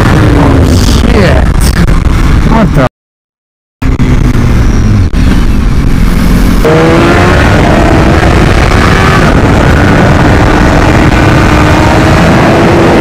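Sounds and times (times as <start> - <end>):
wind rush: 0.0 - 2.9, 3.8 - 13.0
sport bike engine accelerating: 3.8 - 13.0.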